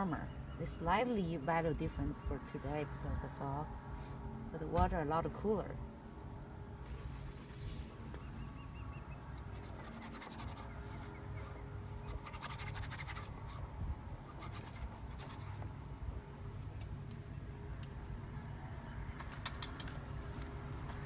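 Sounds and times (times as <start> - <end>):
low steady rumble: 0.0 - 21.0
paintbrush scrubbing: 9.4 - 13.6, 14.2 - 15.6.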